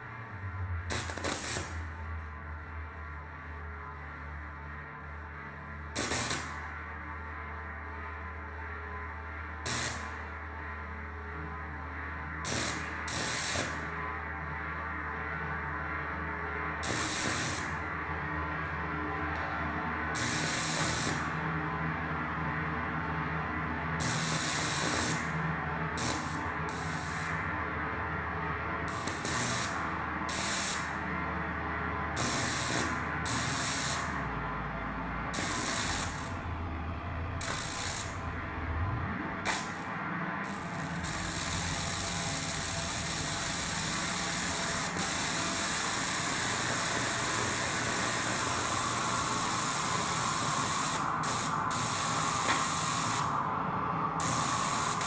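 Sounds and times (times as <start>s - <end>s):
low droning tones: 0.0s - 55.0s.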